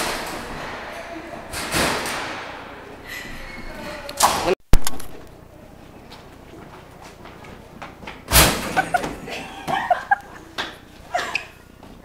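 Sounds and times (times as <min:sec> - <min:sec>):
loud slam in stairwell: 0:00.0 - 0:02.9, 0:08.3 - 0:09.1.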